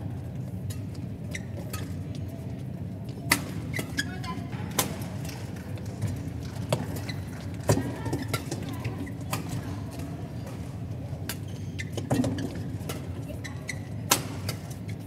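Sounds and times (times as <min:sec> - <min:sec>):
steady hall hum: 0:00.0 - 0:15.0
shoe squeaks on court: 0:11.4 - 0:15.0.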